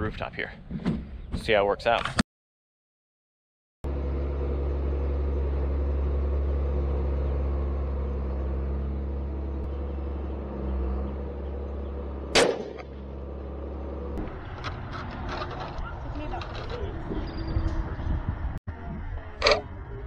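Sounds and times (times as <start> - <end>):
low machine hum: 3.9 - 20.0
rifle shot: 12.3 - 12.9.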